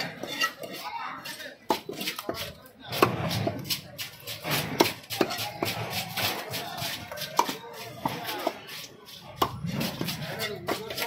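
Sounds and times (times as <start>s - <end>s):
knife chopping fish on wood: 1.7s - 8.6s, 9.4s - 11.0s.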